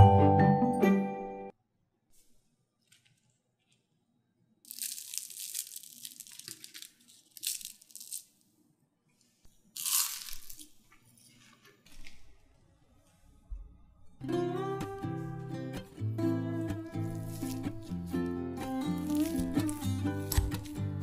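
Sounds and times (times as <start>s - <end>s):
fried potato crackling: 4.7s - 8.4s, 9.8s - 10.7s, 17.1s - 21.0s.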